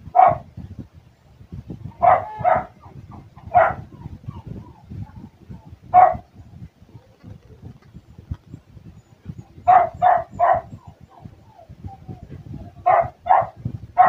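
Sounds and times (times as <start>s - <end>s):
dog barking: 0.1s - 0.5s, 2.0s - 4.4s, 5.9s - 6.3s, 9.6s - 11.3s, 12.8s - 14.0s.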